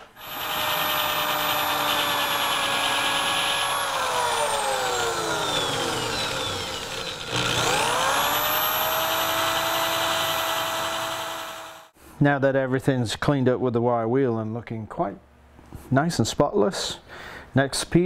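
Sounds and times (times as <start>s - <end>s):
wire wheel motor whine: 0.2s - 11.9s.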